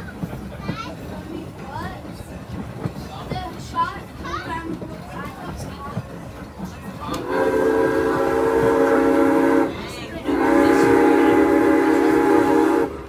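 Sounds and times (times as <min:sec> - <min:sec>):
steam whistle blasts: 0:07.2 - 0:09.7, 0:10.3 - 0:13.0.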